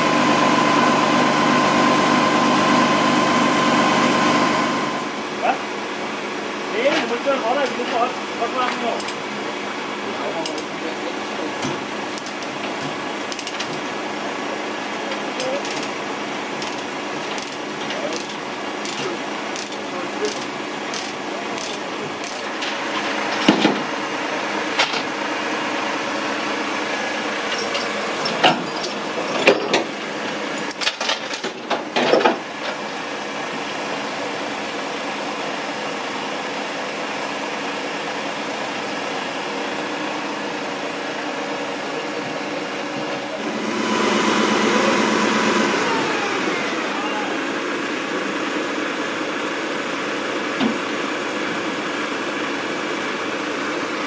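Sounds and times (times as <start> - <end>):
hydraulic crane lifting: 0.0 - 54.0
truck engine running: 0.0 - 54.0
chains clanking and rattling: 16.6 - 23.9, 27.4 - 32.4.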